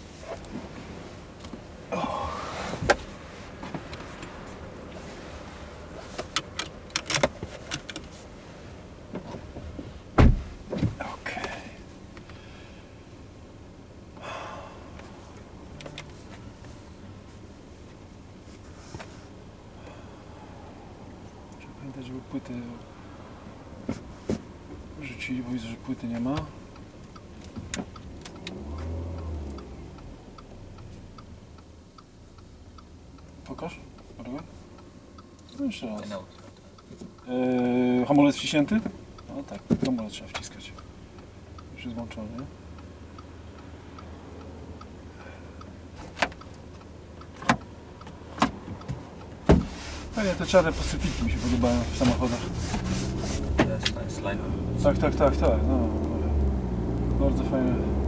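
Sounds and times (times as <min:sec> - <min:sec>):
heavy low thump: 0:10.2 - 0:11.0
car indicator ticking: 0:24.7 - 0:49.7.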